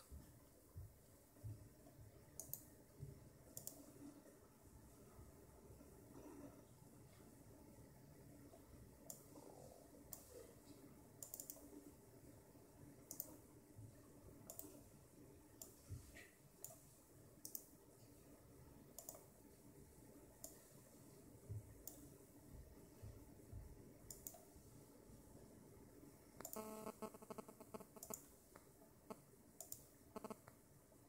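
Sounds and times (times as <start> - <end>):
faint low hum: 0.0 - 31.0
mouse buttons clicking: 3.6 - 3.9, 11.2 - 11.7, 13.1 - 13.4, 14.5 - 14.8, 19.0 - 19.2, 24.1 - 24.4, 26.4 - 28.2, 29.6 - 30.6.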